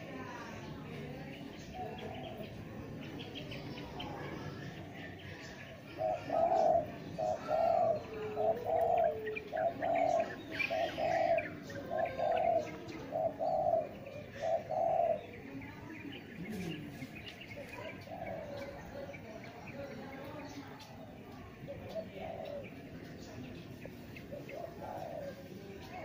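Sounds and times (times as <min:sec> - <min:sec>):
dove cooing: 0:03.5 - 0:19.2, 0:21.6 - 0:26.0.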